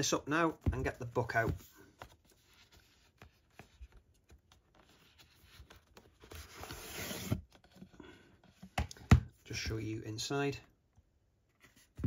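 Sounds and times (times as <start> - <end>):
book sliding out of cardboard slot: 6.3 - 7.5.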